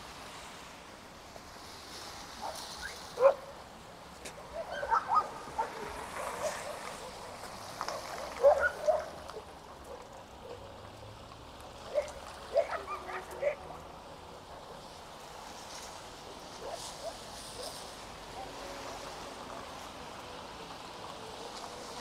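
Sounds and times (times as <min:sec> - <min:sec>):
rain hissing: 0:00.0 - 0:22.0
dog barking: 0:03.2 - 0:03.4, 0:04.5 - 0:07.2, 0:07.9 - 0:10.7, 0:11.9 - 0:13.6.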